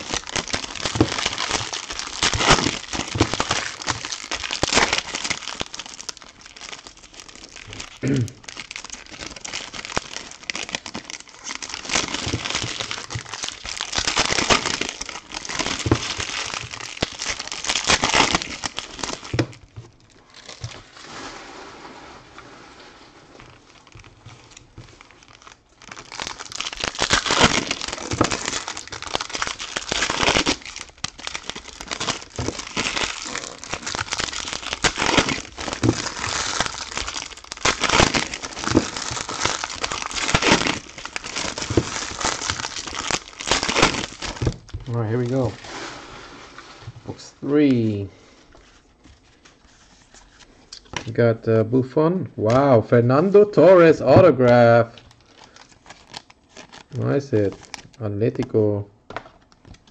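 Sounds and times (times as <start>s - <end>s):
foil wrappers crinkling and tearing: 0.0s - 21.2s, 23.4s - 46.6s, 48.5s - 51.2s, 52.4s - 58.5s, 59.1s - 59.9s.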